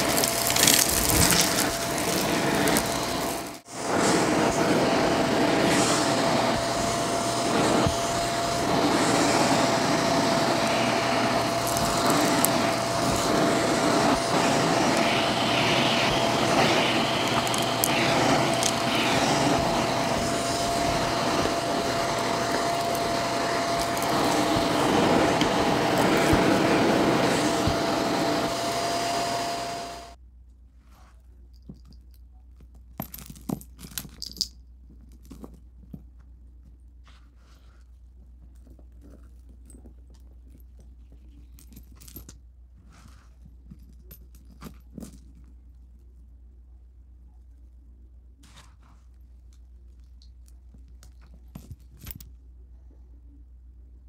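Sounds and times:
vacuum cleaner running: 0.0s - 30.2s.

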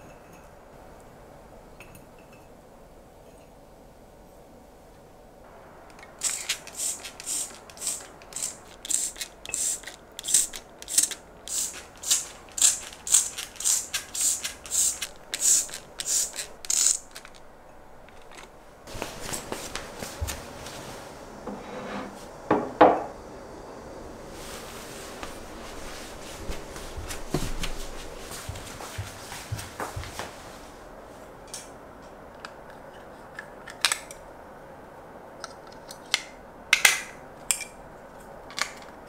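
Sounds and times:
handling noise: 5.5s - 21.4s
spray bottle spritzing: 5.9s - 17.4s.

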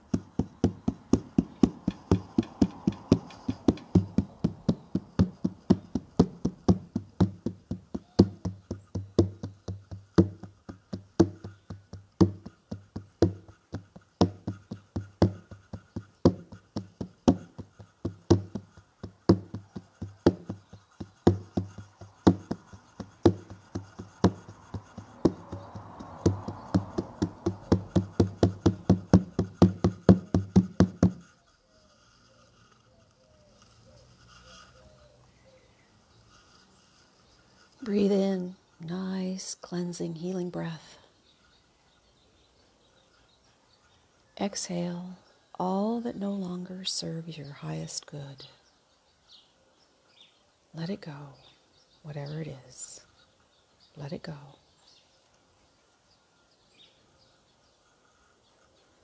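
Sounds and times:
hand drum beats: 0.0s - 31.2s.

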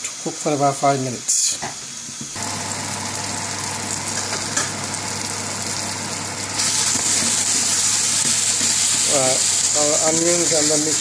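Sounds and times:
onions sizzling in a frying pan: 0.0s - 11.0s
spatula stirring in a pan: 6.6s - 11.0s.

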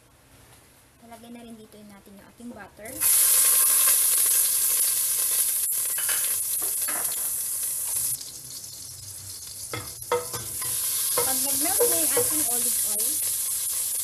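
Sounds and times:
butter sizzling in oil: 3.0s - 14.0s.

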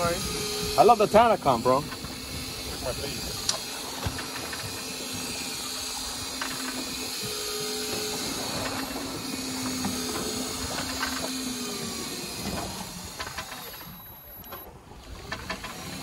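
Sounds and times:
wind and sea hiss: 0.0s - 16.0s.

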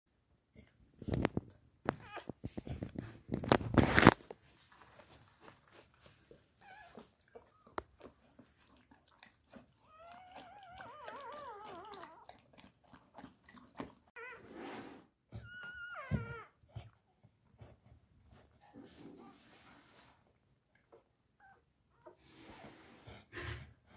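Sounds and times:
dog licking and chewing: 4.7s - 14.1s
newborn puppy squealing: 9.8s - 12.3s, 15.4s - 16.6s.

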